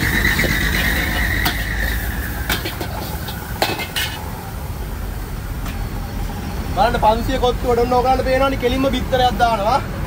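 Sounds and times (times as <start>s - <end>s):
metal spatula scraping a wok: 0.0s - 4.3s
high whine: 0.0s - 4.6s.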